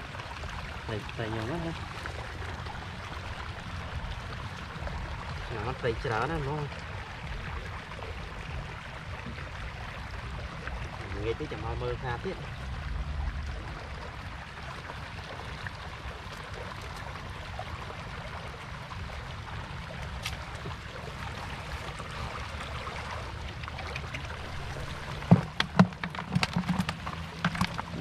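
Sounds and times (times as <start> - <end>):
water running over ground: 0.0 - 28.0
knocks on a plastic bucket: 25.2 - 28.0.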